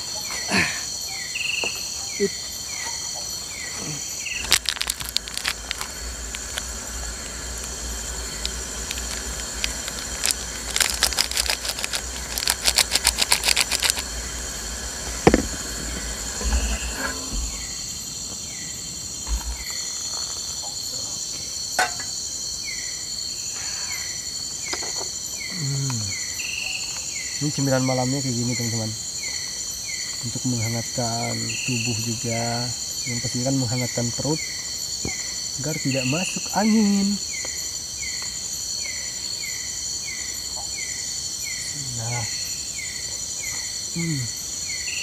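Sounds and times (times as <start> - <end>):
cricket chirping: 0.0 - 45.0
insects buzzing: 0.0 - 45.0
rapid handling clicks: 8.4 - 14.1
sharp knock: 15.2 - 15.6.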